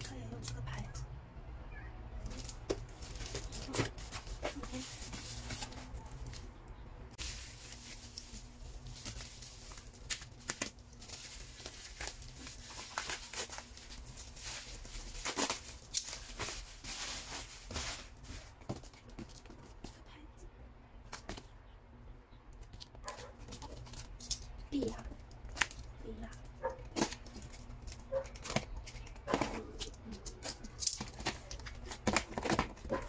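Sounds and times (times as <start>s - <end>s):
plastic packaging crinkling: 2.2s - 6.5s, 7.2s - 19.3s.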